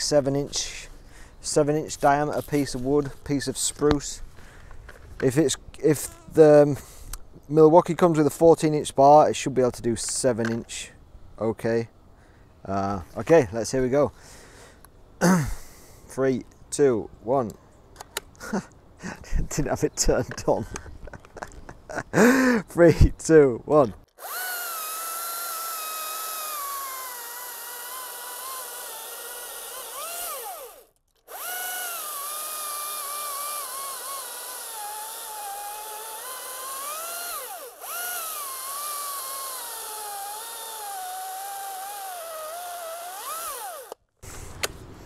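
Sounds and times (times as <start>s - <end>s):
electric chainsaw cutting log: 24.1s - 44.7s.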